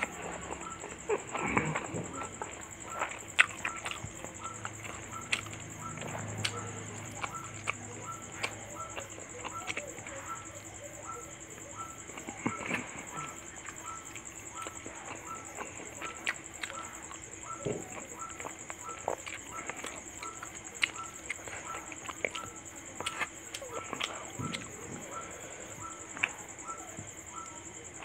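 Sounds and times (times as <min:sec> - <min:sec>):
wet chewing sounds: 0:00.0 - 0:28.0.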